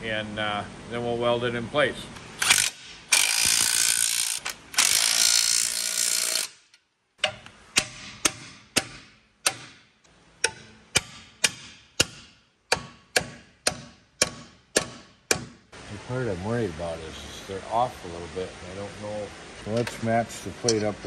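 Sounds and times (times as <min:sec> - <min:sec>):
hand ratchet clicking: 0:02.4 - 0:09.6.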